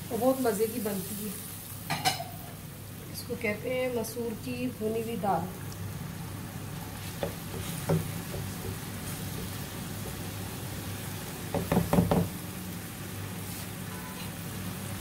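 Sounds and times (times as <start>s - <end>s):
liquid simmering: 5.5s - 11.2s
spatula knocking on pan: 7.2s - 10.2s, 11.5s - 12.4s.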